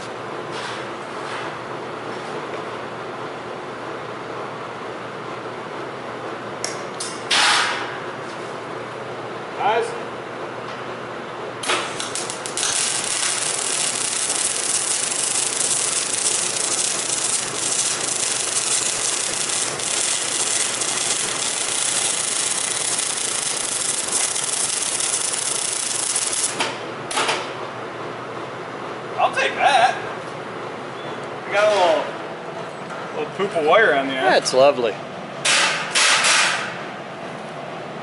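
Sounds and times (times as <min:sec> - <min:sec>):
welding arc crackling and sizzling: 0:11.6 - 0:27.2.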